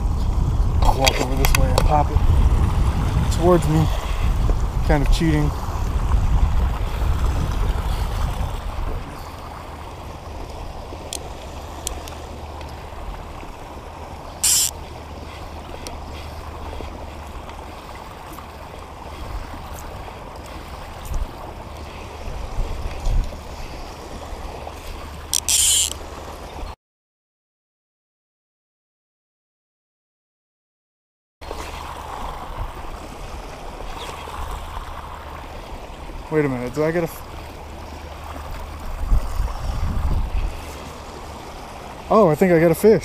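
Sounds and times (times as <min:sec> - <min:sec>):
low rumble: 0:00.0 - 0:13.8
creek water rushing over rocks: 0:00.0 - 0:26.7, 0:31.4 - 0:43.0.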